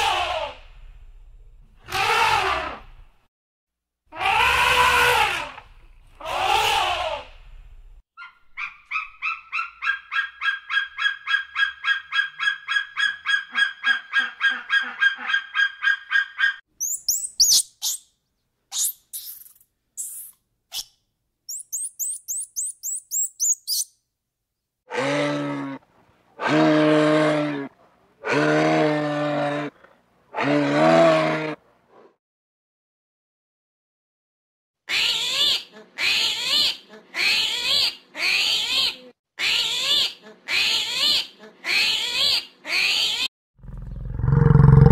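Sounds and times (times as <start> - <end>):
bird of prey calling: 8.2 - 18.0, 21.5 - 23.9
high thin chirps: 16.8 - 18.1, 18.7 - 23.9.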